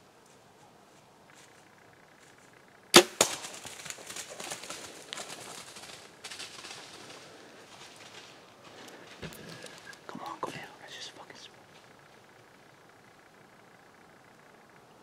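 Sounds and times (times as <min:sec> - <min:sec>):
arrow striking animal: 0:03.0 - 0:03.6
deer crashing through dry leaves: 0:03.0 - 0:08.4.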